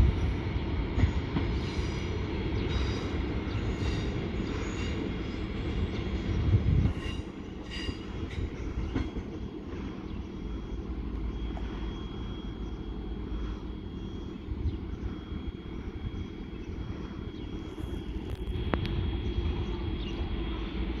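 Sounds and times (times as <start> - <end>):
train engine and wheel rumble: 0.0 - 21.0.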